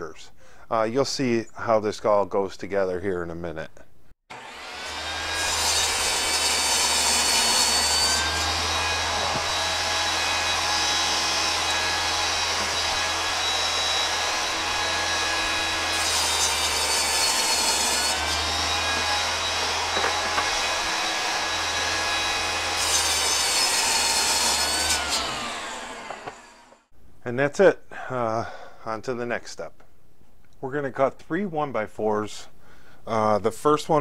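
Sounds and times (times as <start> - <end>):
saw cutting plywood: 4.3 - 26.9
table saw whining: 4.3 - 26.9.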